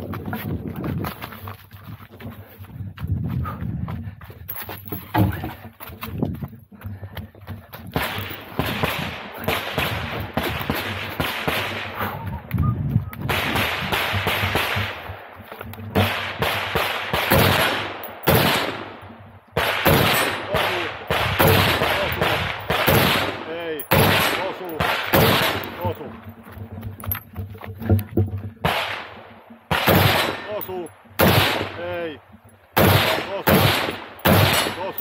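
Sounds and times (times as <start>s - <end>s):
gunshots with echo: 8.0s - 12.0s, 16.0s - 19.0s, 19.6s - 26.0s, 28.6s - 32.0s, 32.8s - 35.0s.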